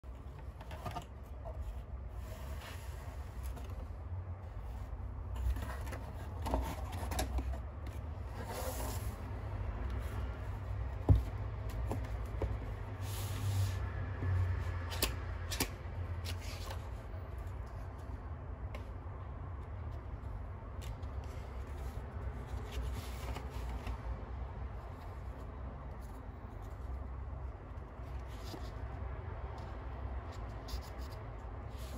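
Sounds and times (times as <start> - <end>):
cardboard and paper rustling: 0.1 - 9.3, 20.2 - 24.2.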